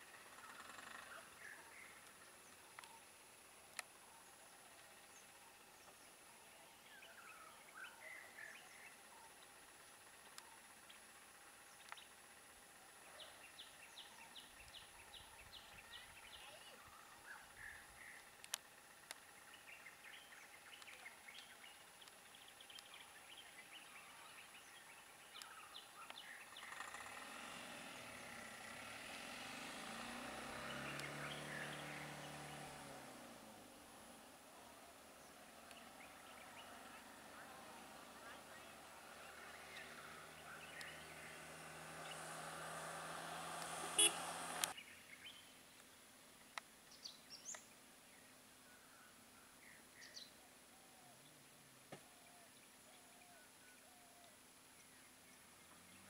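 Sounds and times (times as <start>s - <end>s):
bird chirps: 0.0s - 12.2s, 12.9s - 27.2s, 30.6s - 32.6s, 35.2s - 42.5s
vehicle engine: 0.0s - 44.9s, 55.3s - 56.0s
sharp clicks: 44.5s - 44.7s.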